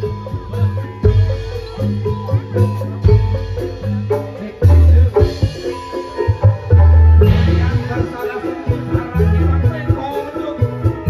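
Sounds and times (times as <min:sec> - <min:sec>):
drum beat: 0:00.0 - 0:11.0
melody of struck notes: 0:00.0 - 0:11.0
deep bass notes: 0:06.5 - 0:10.0.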